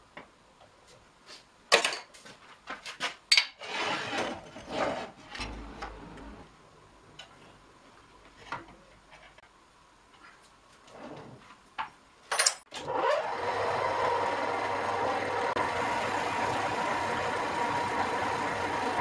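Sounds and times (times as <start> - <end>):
wood scraping against rollers: 3.6 - 6.4
knocks and metallic clinks: 12.3 - 12.7.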